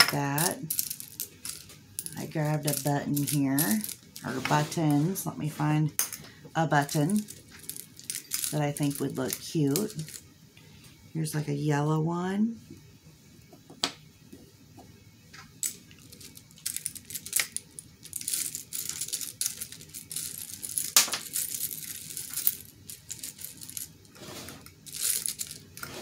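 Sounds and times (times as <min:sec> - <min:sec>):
buttons rattling in glass jar: 0:00.0 - 0:04.3, 0:06.8 - 0:10.2, 0:15.6 - 0:26.0.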